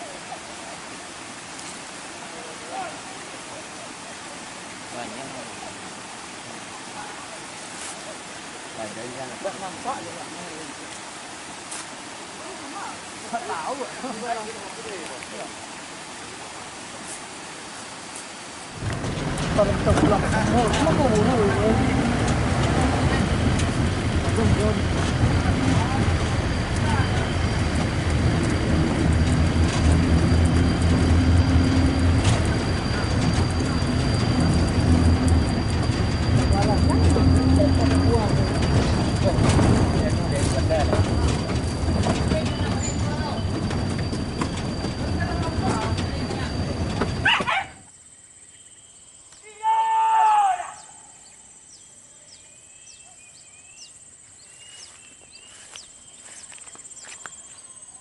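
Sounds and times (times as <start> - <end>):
vehicle engine running: 18.8 - 47.3
high insect drone: 23.0 - 58.0
faint bird chirps: 47.9 - 49.6, 50.6 - 58.0.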